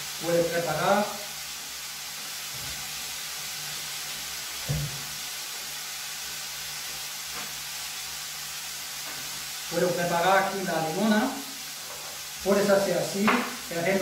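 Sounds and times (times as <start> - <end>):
mushrooms sizzling in a frying pan: 0.0 - 14.0.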